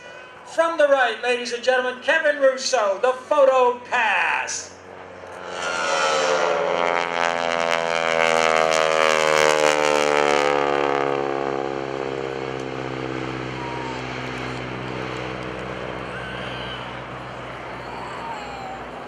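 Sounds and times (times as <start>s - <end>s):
propeller plane flying past: 4.6s - 19.0s.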